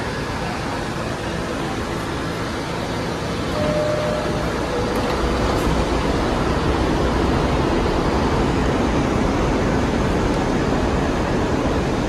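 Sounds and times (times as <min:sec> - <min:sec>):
train rumble: 0:00.0 - 0:12.0
two-tone door chime: 0:03.6 - 0:05.2.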